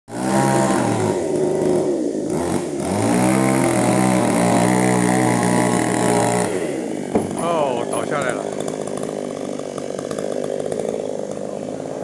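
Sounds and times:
chainsaw running: 0.1s - 12.0s.

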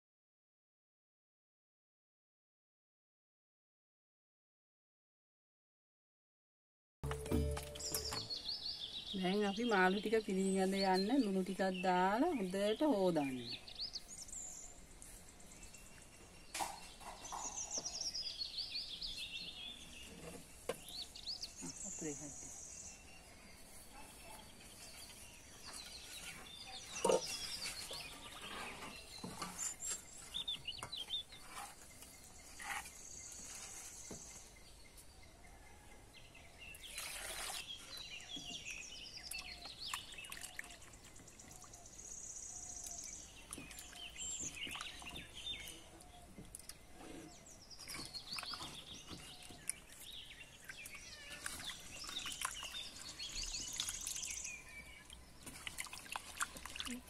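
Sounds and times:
birds chirping: 7.0s - 57.0s
hands squelching fish in water: 39.3s - 41.6s, 47.8s - 57.0s.

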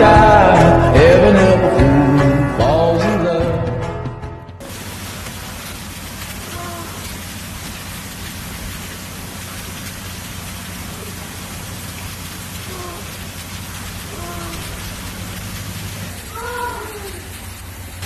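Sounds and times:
steady hiss: 4.6s - 18.0s
seal pup high cries: 16.2s - 17.3s.

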